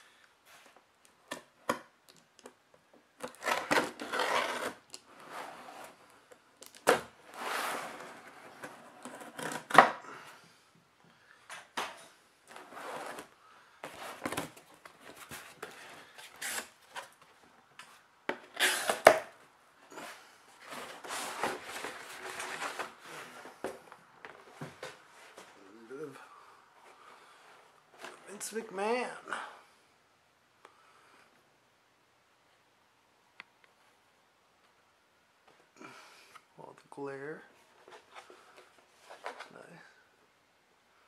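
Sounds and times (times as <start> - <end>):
knife slitting packing tape: 18.5 - 19.3.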